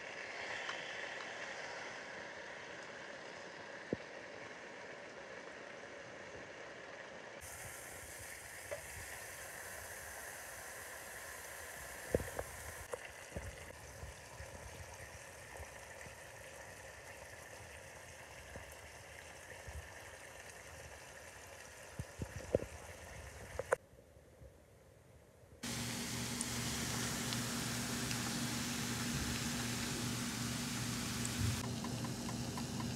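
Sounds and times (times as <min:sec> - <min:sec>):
bacon sizzling in a pan: 0:07.4 - 0:12.9, 0:25.6 - 0:32.8.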